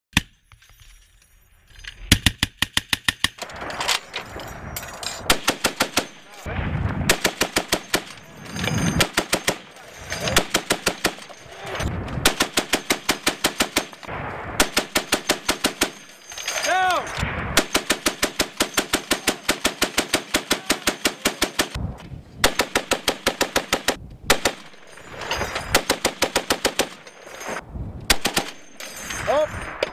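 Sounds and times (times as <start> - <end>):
heavy machine gun firing bursts: 5.3 - 6.2, 7.1 - 8.2, 12.2 - 16.1, 17.6 - 21.8.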